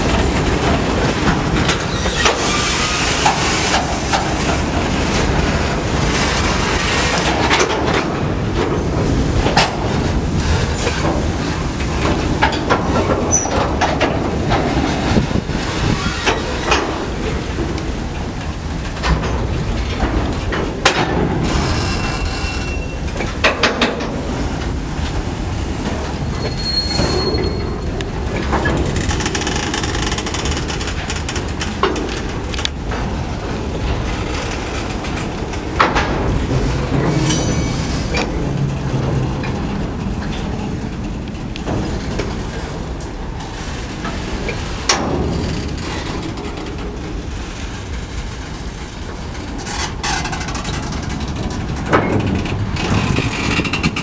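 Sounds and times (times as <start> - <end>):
steel wheels rumbling on rails: 0.0 - 54.0
high-pitched wheel squeal: 21.8 - 23.0, 26.4 - 27.9.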